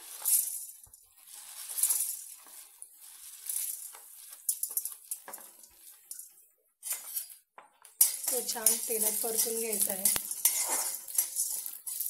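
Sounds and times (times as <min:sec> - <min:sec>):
peppercorns rattling on metal: 0:08.0 - 0:12.0.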